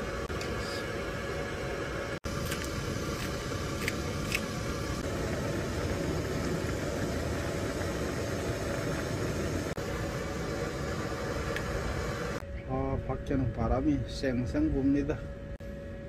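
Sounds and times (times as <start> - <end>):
gas stove burner hissing: 0.0 - 12.4
water boiling: 0.0 - 12.4.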